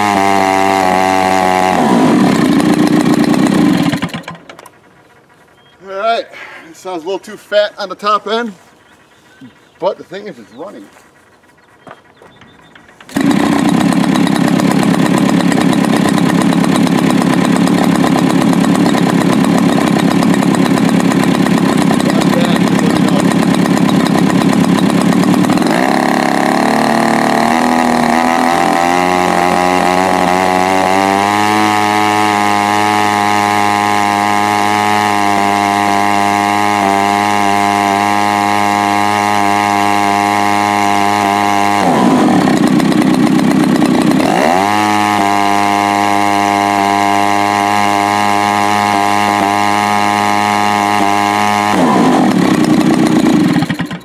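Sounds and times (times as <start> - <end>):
model plane engine running: 0.0 - 5.3, 11.6 - 54.0.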